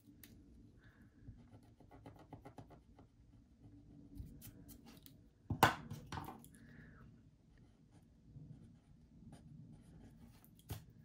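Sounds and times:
marker pen scratching on paper: 0:07.6 - 0:10.9.

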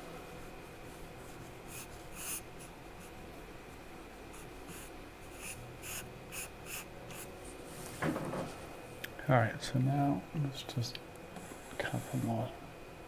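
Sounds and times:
faint steady hum: 0:00.0 - 0:13.0
charcoal scratching on paper: 0:01.3 - 0:03.1.

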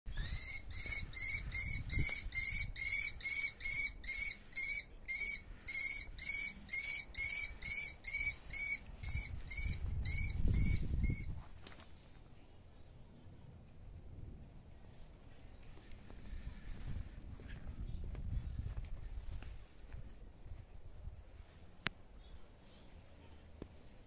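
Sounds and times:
bird of prey piping calls: 0:00.1 - 0:11.4.

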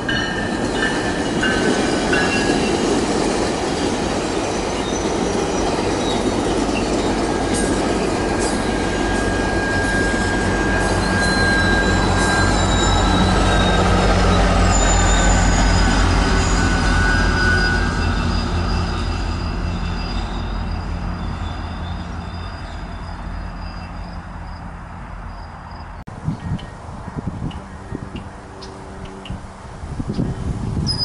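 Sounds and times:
train wheels rumbling on rail: 0:00.0 - 0:31.0
high-pitched wheel squeal: 0:08.5 - 0:24.6.

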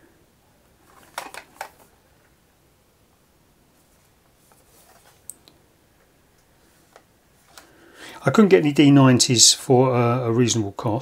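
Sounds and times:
faint plastic rustles: 0:00.8 - 0:02.4, 0:03.7 - 0:05.5, 0:06.3 - 0:08.2.

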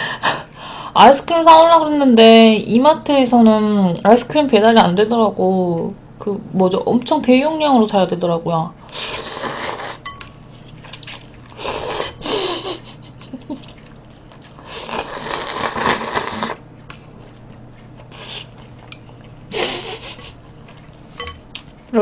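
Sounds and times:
person slurping noodles: 0:08.9 - 0:10.0, 0:11.6 - 0:12.4, 0:14.6 - 0:16.6
person chewing: 0:10.6 - 0:12.2, 0:13.4 - 0:21.7.

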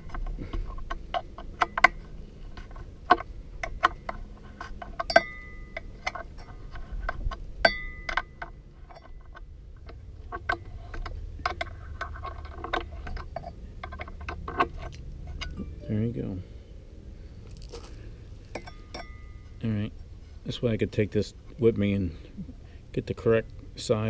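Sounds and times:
brief metallic rings: 0:18.6 - 0:19.6.

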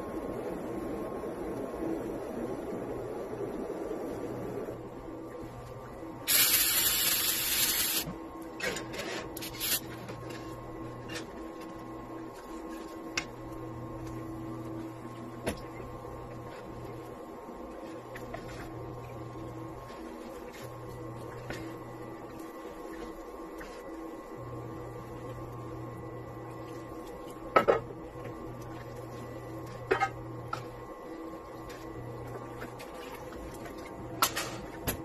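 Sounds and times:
steady machine hum: 0:00.0 - 0:35.0
water spraying in sink: 0:06.3 - 0:08.1.

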